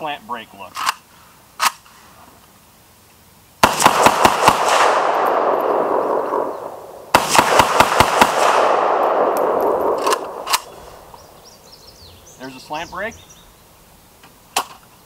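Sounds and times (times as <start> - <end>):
rifle shots: 3.6 - 11.3
rolling gunshot echo: 3.6 - 11.3.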